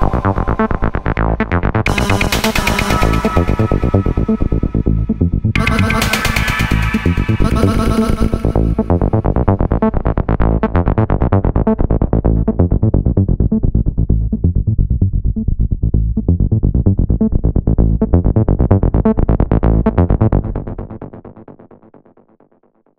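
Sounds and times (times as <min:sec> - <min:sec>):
acid techno synth bassline: 0:00.0 - 0:09.9.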